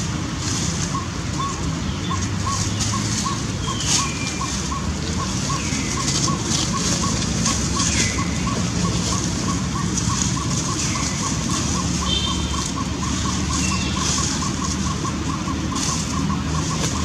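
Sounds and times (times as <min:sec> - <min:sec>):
rustling dry leaves: 0:00.0 - 0:17.0
steady rushing noise: 0:00.0 - 0:17.0.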